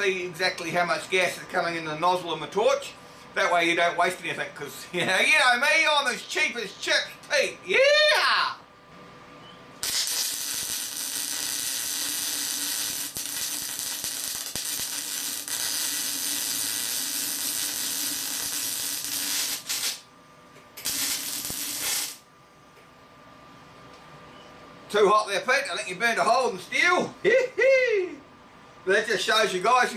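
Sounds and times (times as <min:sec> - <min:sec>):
welding arc hissing: 0:09.8 - 0:20.1, 0:20.8 - 0:22.3.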